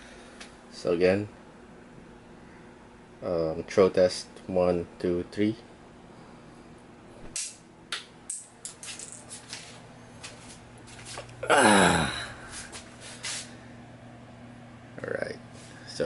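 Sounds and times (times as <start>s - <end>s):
toy clattering on floor: 8.3s - 9.7s
short falling cry: 11.4s - 12.4s.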